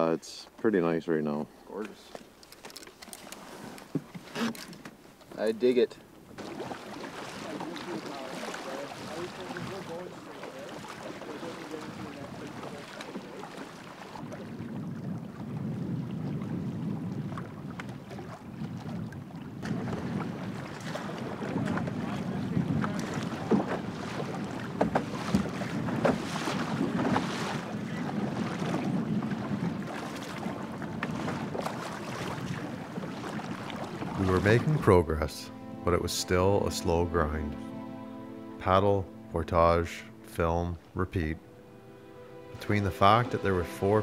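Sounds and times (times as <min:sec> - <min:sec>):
water splashing: 0:01.7 - 0:37.6, 0:38.6 - 0:44.0
water slapping against canoe hull: 0:01.8 - 0:05.5, 0:06.1 - 0:35.0
wind on microphone: 0:14.2 - 0:34.8.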